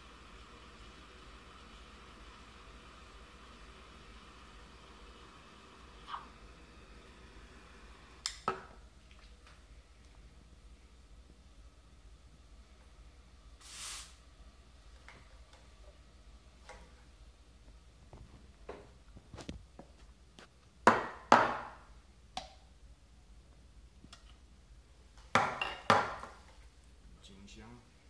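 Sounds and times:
short hiss: 0:13.6 - 0:14.3.

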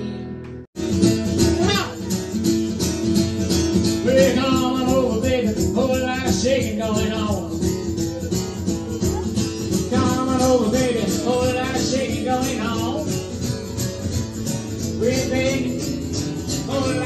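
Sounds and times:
acoustic guitar strummed: 0:00.0 - 0:17.0
person singing: 0:08.2 - 0:13.1, 0:14.9 - 0:17.0.

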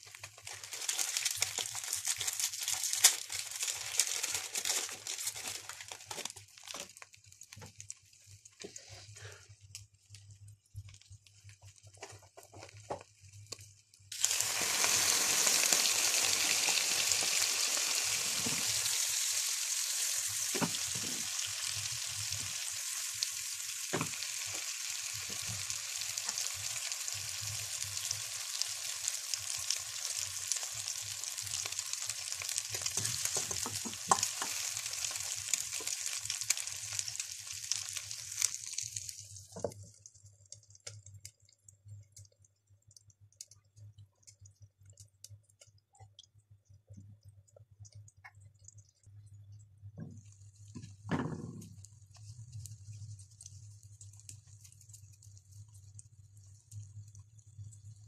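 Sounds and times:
eggs sizzling in a frying pan: 0:00.0 - 0:58.0
pops and clicks: 0:32.7 - 0:49.2.

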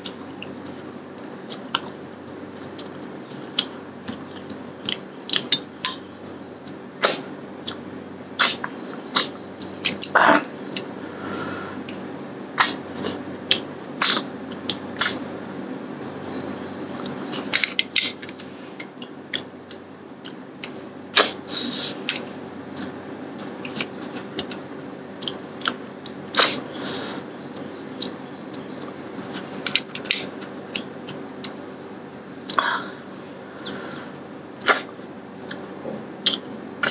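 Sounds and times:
faint steady hum: 0:00.0 - 0:36.9
wet eating mouth sounds: 0:12.6 - 0:15.3, 0:34.6 - 0:36.9.

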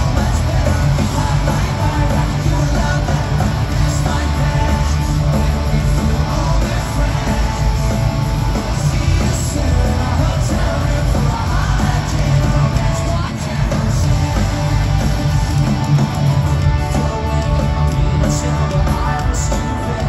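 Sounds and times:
electric guitars: 0:00.0 - 0:20.0
rock band playing loud: 0:00.0 - 0:20.0.

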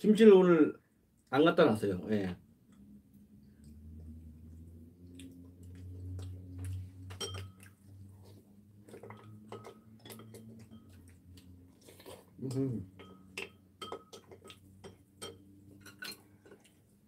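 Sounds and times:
low steady hum: 0:00.0 - 0:17.0
chopsticks clinking on bowls: 0:07.1 - 0:07.8, 0:09.0 - 0:11.2, 0:12.9 - 0:16.7.

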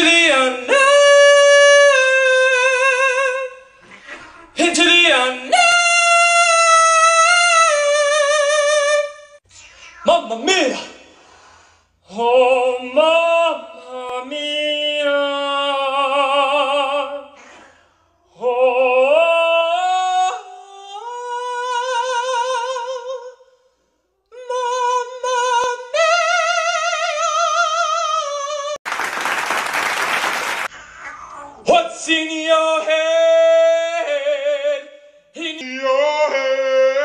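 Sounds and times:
man singing operatically: 0:00.0 - 0:03.8, 0:04.5 - 0:09.4, 0:12.1 - 0:17.4, 0:18.3 - 0:23.4, 0:24.3 - 0:28.8, 0:31.7 - 0:37.0.

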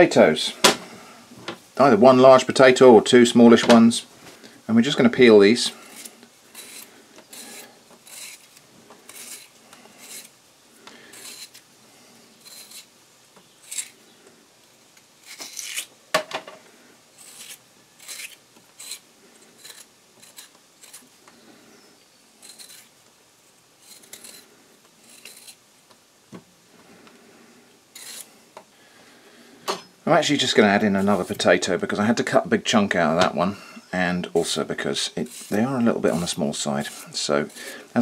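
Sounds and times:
blade scraping potato skin: 0:05.7 - 0:10.4, 0:11.0 - 0:11.6, 0:12.4 - 0:12.9, 0:13.6 - 0:14.0, 0:15.2 - 0:15.9, 0:17.2 - 0:21.1, 0:22.4 - 0:22.9, 0:23.8 - 0:25.6, 0:27.9 - 0:28.3, 0:35.1 - 0:38.0.

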